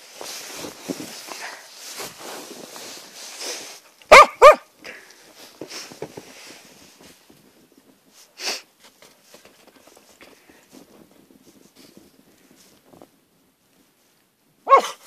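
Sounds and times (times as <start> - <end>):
rustling in snow: 0.0 - 4.0, 4.9 - 14.7
dog barking: 4.1 - 4.7, 14.6 - 15.0.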